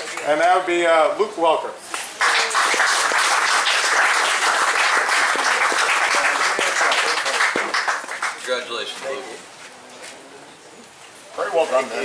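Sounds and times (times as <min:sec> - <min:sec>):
audience clapping: 0:02.2 - 0:08.7.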